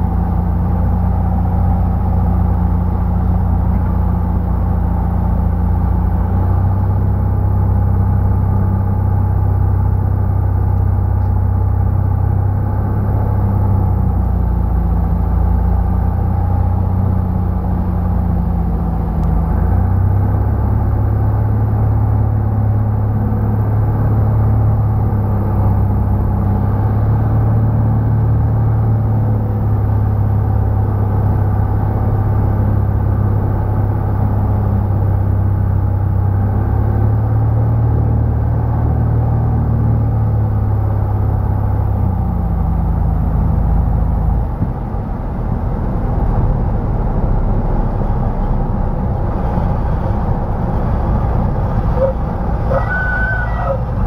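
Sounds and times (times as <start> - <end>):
propeller plane engine droning: 0.0 - 54.0
brief high tone: 52.0 - 54.0.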